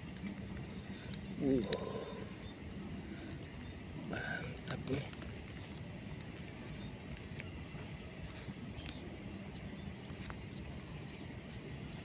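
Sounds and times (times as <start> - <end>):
faint ticks and rustles: 0.0 - 2.5, 3.1 - 9.0
low background noise: 0.0 - 12.0.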